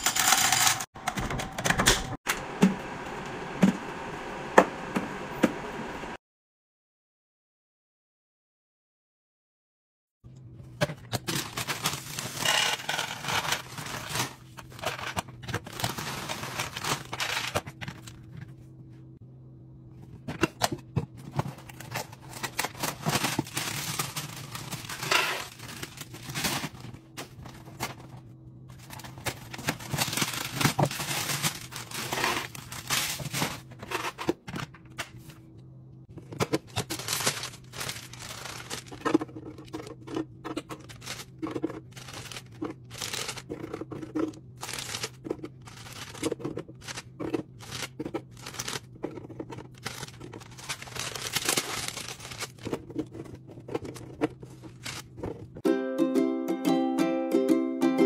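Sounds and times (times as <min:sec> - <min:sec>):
plastic bag crinkling: 0:21.7 - 0:26.9, 0:28.8 - 0:33.7, 0:36.7 - 0:40.2, 0:40.8 - 0:55.6.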